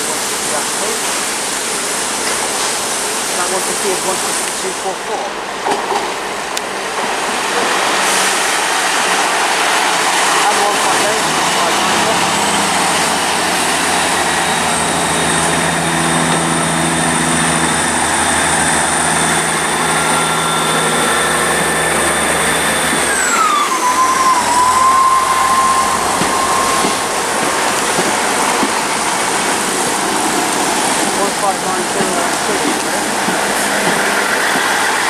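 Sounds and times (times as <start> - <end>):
diesel train engine hum: 0.0 - 35.0
high whine: 10.4 - 31.3.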